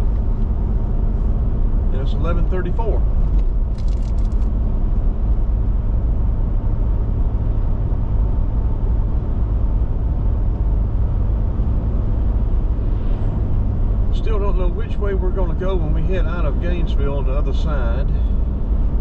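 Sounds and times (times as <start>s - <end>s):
car road and engine rumble: 0.0s - 19.0s
brief clicks or rattles: 3.3s - 4.5s.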